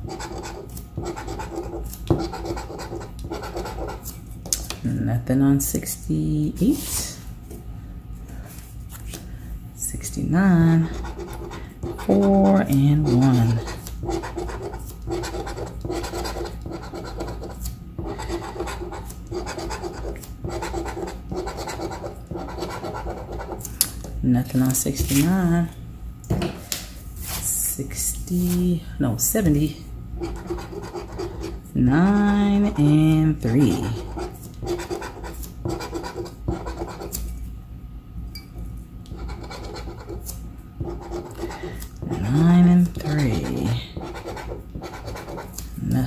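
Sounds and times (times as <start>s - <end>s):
scratch card being scraped: 0.0s - 4.2s, 10.9s - 23.7s, 30.2s - 31.6s, 33.6s - 37.2s, 39.1s - 45.6s.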